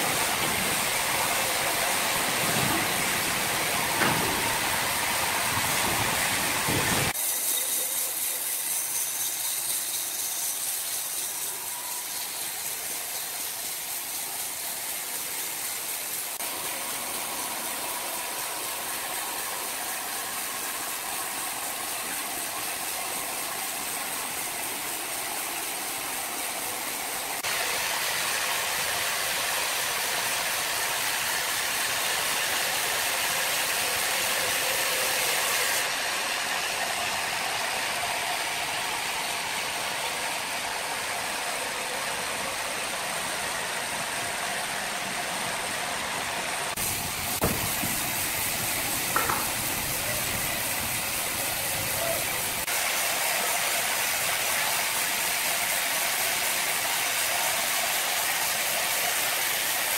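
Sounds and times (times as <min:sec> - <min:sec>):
band saw blade hissing in wood: 0:06.3 - 0:16.2.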